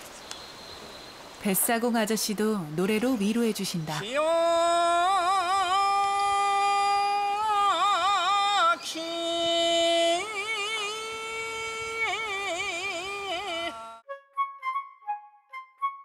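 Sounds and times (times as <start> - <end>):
man singing unaccompanied: 4.0 - 14.0.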